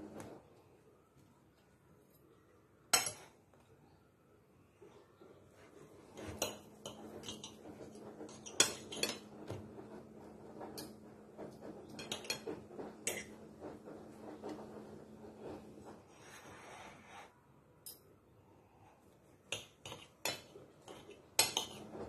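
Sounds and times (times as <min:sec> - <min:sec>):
utensils clinking on dishes: 0:06.2 - 0:09.7, 0:11.8 - 0:13.4, 0:19.5 - 0:22.0.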